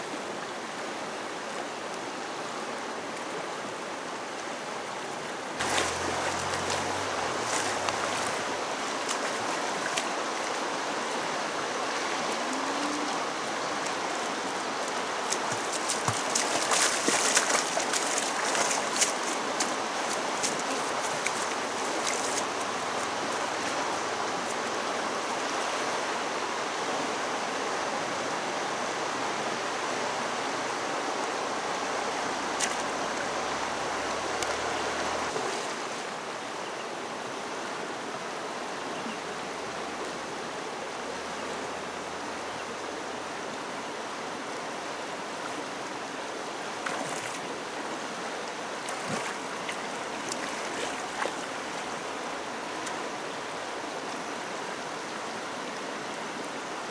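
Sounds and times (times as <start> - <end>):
river rushing: 0.0 - 56.9
splashes from wading: 5.6 - 10.6, 11.9 - 24.6, 46.8 - 47.5, 48.8 - 51.9.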